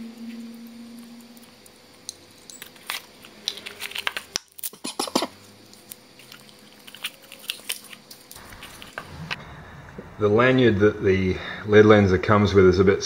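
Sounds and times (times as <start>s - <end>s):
cardboard packaging rustling: 6.1s - 9.2s.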